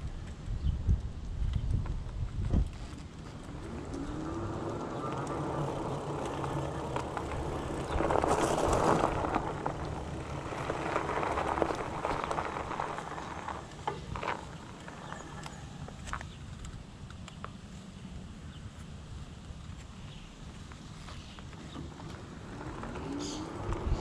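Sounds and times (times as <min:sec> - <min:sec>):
bicycle tyres humming on pavement: 0:00.0 - 0:24.0
tyres crunching on gravel: 0:02.7 - 0:16.8.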